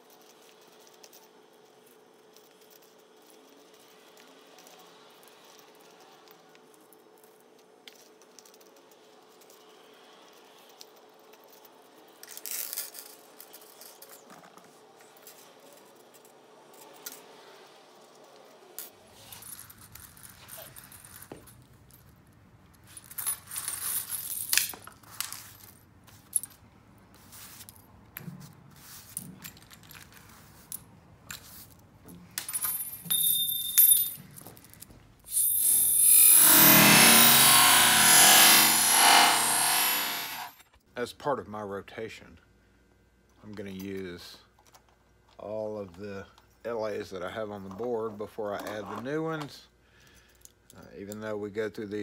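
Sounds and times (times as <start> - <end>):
small brass parts clinking: 32.4 - 36.1.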